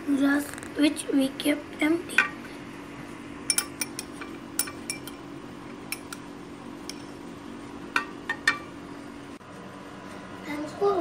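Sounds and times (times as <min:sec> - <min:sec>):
teaspoon clinking against glass: 0:03.5 - 0:05.2.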